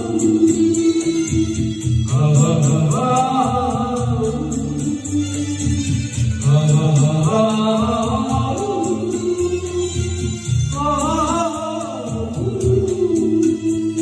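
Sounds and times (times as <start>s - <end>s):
instrumental accompaniment with beat: 0.0s - 14.0s.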